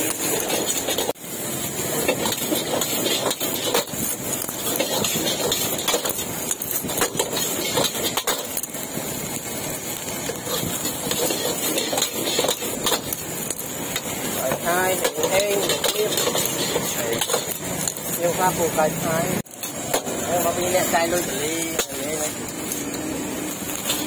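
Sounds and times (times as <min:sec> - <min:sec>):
engines running: 0:00.0 - 0:24.0
sharp knocks and clatter: 0:02.1 - 0:08.6.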